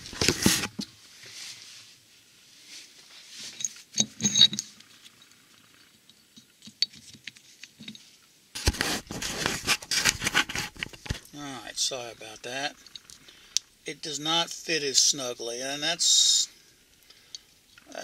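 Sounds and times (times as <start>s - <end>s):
camera handling rustling: 0.0s - 0.8s, 8.6s - 11.3s
metal parts clinking on a bench: 3.6s - 4.8s.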